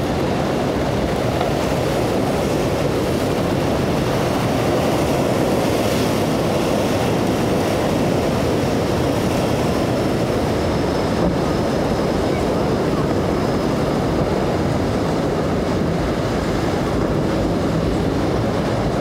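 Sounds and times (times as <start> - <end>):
outboard motor droning: 0.0 - 19.0
waves breaking: 0.0 - 19.0
wind: 0.0 - 19.0.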